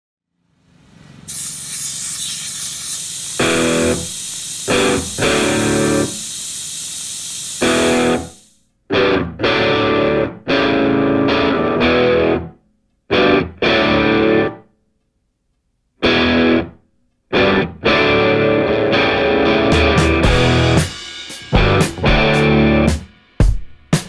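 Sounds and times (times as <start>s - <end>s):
rock music with distorted guitar: 3.4s - 4.0s, 4.7s - 6.1s, 7.7s - 8.3s, 8.9s - 12.5s, 13.1s - 14.6s, 16.0s - 24.0s.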